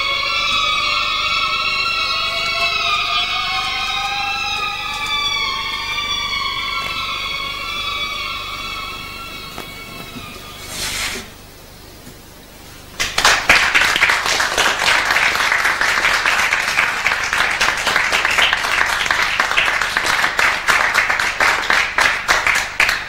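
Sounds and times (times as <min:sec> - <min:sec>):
audience applauding: 0:00.0 - 0:10.6, 0:12.9 - 0:23.0.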